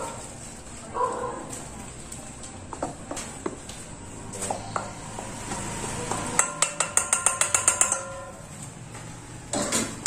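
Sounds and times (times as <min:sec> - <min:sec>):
metal bowl knocked and ringing: 0:06.3 - 0:08.4.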